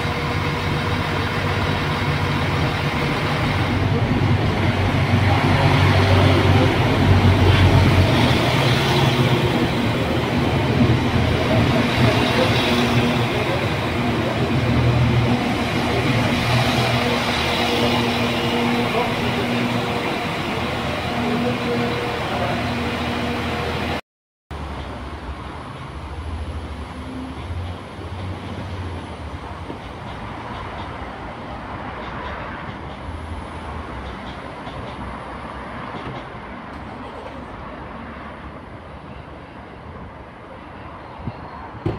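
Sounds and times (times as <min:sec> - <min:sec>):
diesel train engine drone: 0:00.0 - 0:24.0
rail noise: 0:00.0 - 0:41.9.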